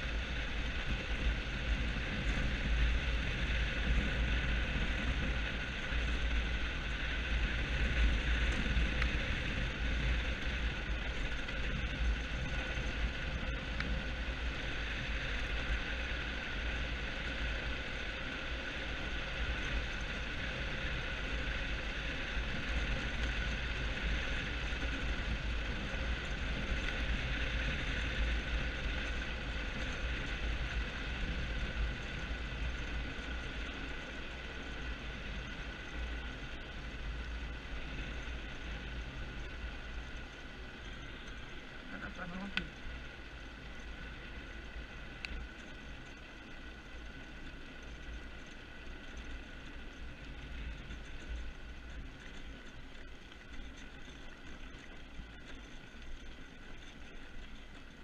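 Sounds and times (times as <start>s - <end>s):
steady high hum: 0.0s - 58.0s
tyres rolling on rough asphalt: 0.0s - 58.0s.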